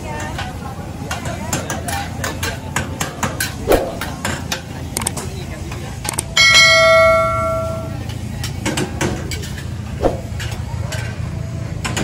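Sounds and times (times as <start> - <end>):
outdoor market background noise: 0.0 - 12.0
click: 5.0 - 5.2
bell-like chime: 6.4 - 8.0.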